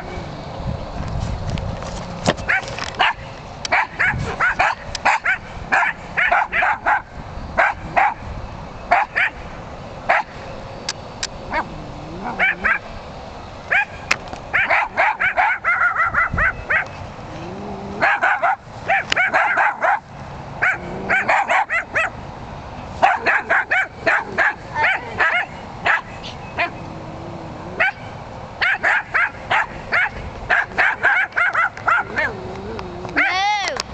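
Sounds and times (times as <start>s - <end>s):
dogs yapping: 2.4s - 8.2s, 8.9s - 9.4s, 11.5s - 13.0s, 13.7s - 22.2s, 23.0s - 33.4s.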